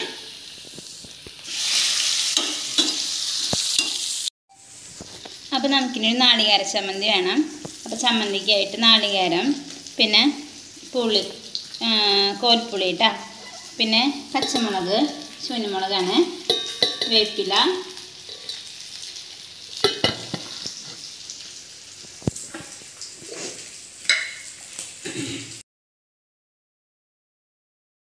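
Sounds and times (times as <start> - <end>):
food sizzling in a pan: 0.0 - 25.6
spoon scraping and knocking pan: 2.3 - 4.1, 13.2 - 15.7, 16.3 - 18.7, 19.8 - 21.1, 24.1 - 24.5
squeaky scraping: 13.3 - 13.8.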